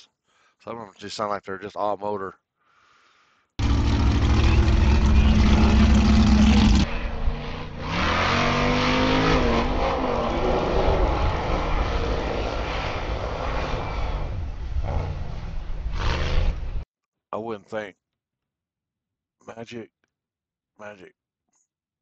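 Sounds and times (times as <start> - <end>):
buggy engine at high revs: 3.6 - 15.3
buggy engine revving up: 3.6 - 16.6.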